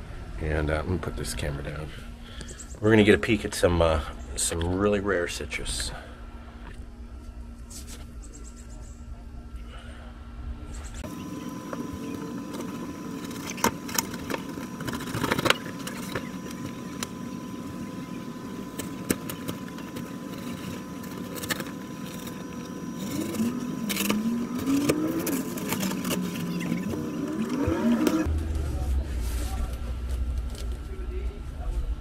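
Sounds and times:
engine drone: 9.5 - 32.0.

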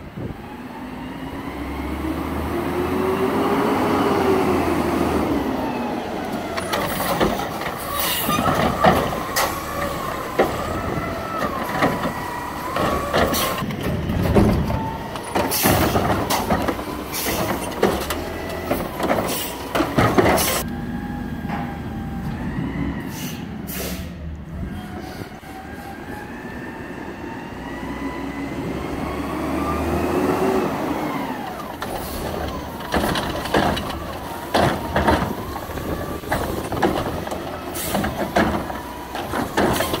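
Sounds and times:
garbage truck engine running: 0.4 - 22.9, 28.0 - 40.0
cart arm whining: 1.6 - 23.2, 27.8 - 40.0
cart banging and clattering: 6.2 - 20.6, 31.0 - 40.0.

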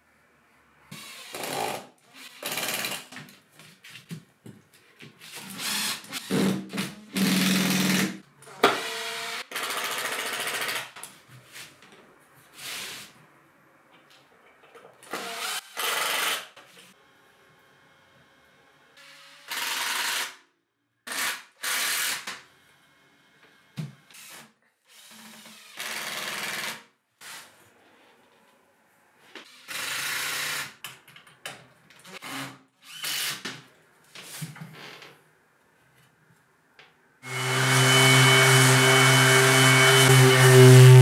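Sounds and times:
orbital sander humming: 37.3 - 41.0.

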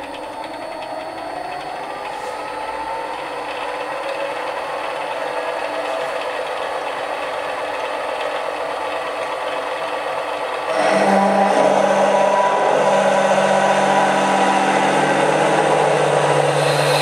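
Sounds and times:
lathe running: 0.0 - 17.0
drill cutting into metal: 12.4 - 17.0.

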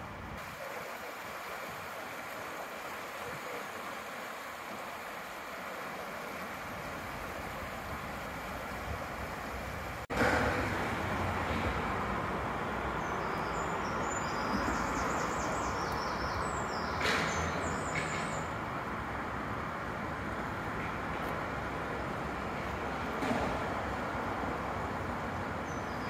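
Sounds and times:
vehicle rumbling: 6.9 - 26.0.

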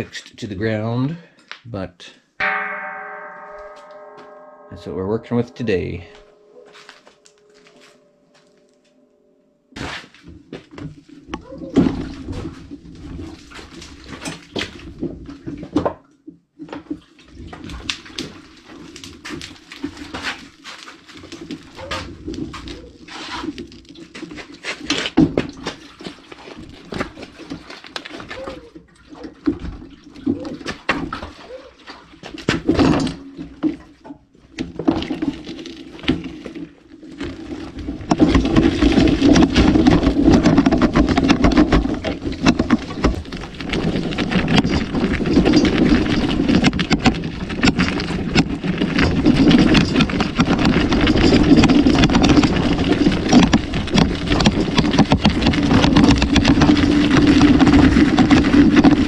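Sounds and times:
generator rattling on wheels: 34.7 - 59.0
knocks and bumps: 37.2 - 59.0.

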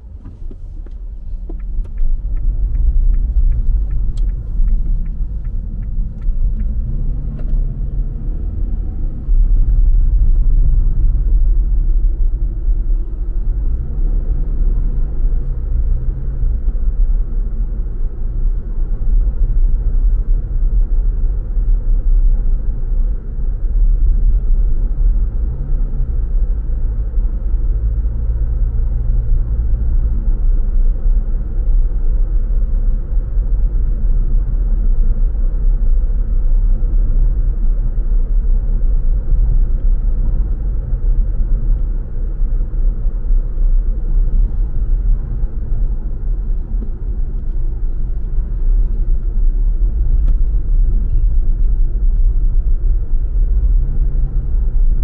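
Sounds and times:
car engine and road rumble: 0.0 - 55.0
light regular ticks: 0.2 - 6.8.

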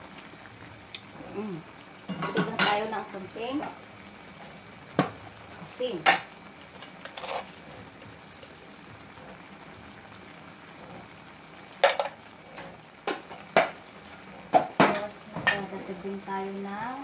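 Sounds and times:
faint sizzle in a frying pan: 0.0 - 17.0
utensil knocking on a pan: 14.5 - 15.7.

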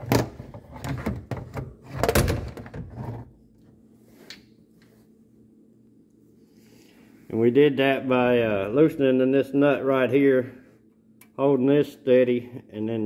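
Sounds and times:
knocks and scraping on plastic: 0.0 - 3.3
faint low hum: 0.0 - 13.0.

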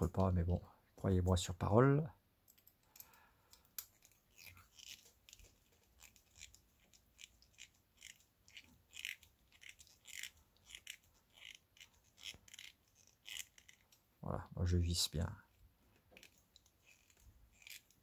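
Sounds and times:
screwdriver squeaking screws: 4.0 - 14.0, 16.2 - 18.0.

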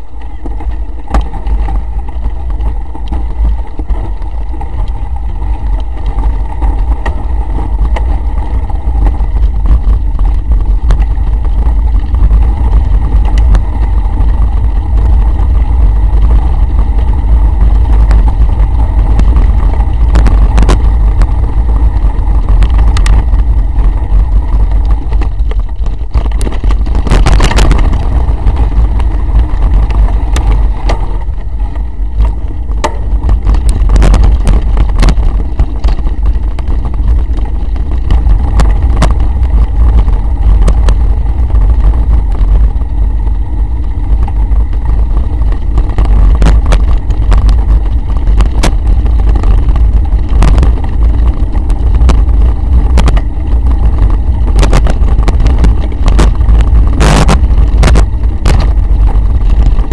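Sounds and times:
bike knocks and rattles: 0.0 - 59.9
wind buffeting microphone: 0.0 - 59.9.

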